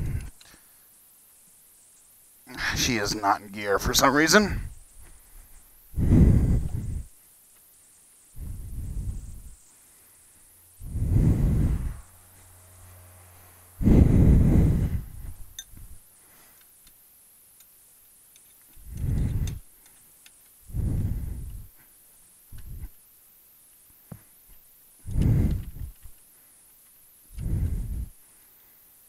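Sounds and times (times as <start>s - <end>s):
low rumbling microphone bursts: 0.0s - 0.3s, 2.6s - 7.2s, 8.3s - 9.6s, 10.7s - 16.1s, 18.8s - 19.7s, 20.6s - 21.8s, 22.5s - 23.0s, 25.0s - 26.1s, 27.3s - 28.2s
faint clicks: 0.0s - 0.6s, 17.6s - 20.6s, 24.5s - 27.8s.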